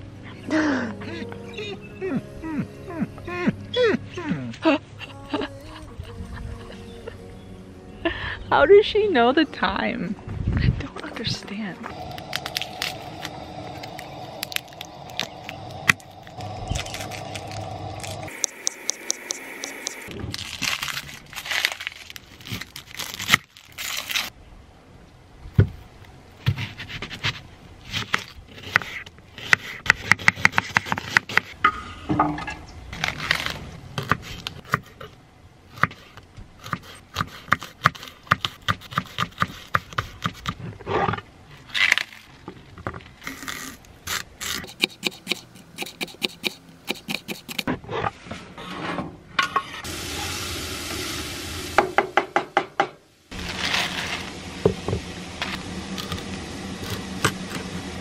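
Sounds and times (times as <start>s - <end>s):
low steady hum: 0.0s - 26.4s.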